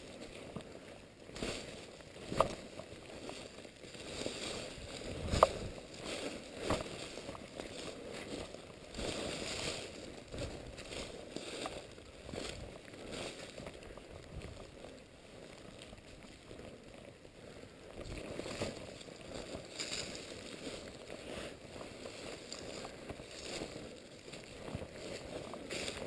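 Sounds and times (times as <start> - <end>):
footsteps crunching dry leaves: 0.0 - 17.3, 18.0 - 26.0
steady low rumble: 0.0 - 26.0.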